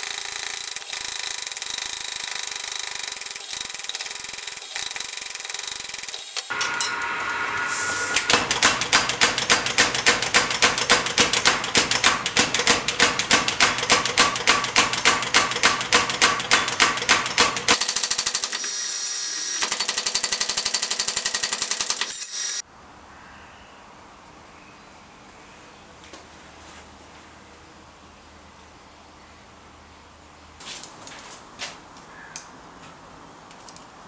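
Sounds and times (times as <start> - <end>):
power hammer striking hot steel: 6.4 - 17.8.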